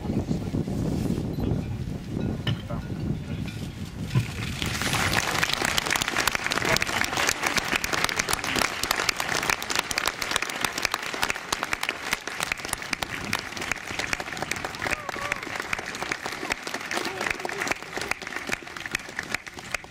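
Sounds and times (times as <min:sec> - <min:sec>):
crowd applauding: 0:04.4 - 0:19.9.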